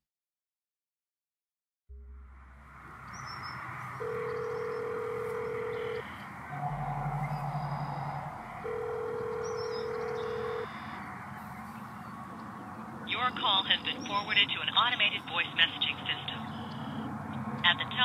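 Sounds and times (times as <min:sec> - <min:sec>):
low hum: 0:01.9 - 0:18.0
faint bird chirps: 0:03.0 - 0:08.6, 0:09.3 - 0:12.6
telephone ringback tone: 0:04.0 - 0:11.0.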